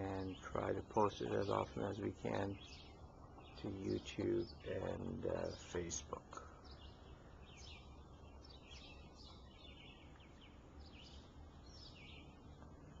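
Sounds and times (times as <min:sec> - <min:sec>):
low steady background hum: 0:00.0 - 0:13.0
songbirds chirping: 0:00.0 - 0:13.0.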